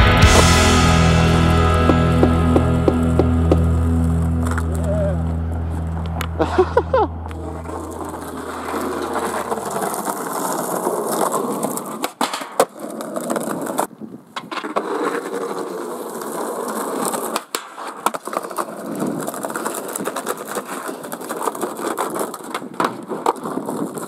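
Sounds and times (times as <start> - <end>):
song bass: 0.0 - 9.7
skateboard wheels rolling on concrete: 0.0 - 24.0
skateboard clacks: 1.7 - 5.3, 7.3 - 24.0.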